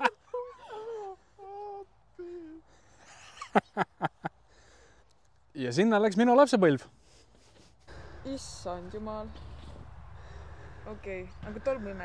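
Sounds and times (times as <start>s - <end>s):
person making wordless tones: 0.0s - 2.7s.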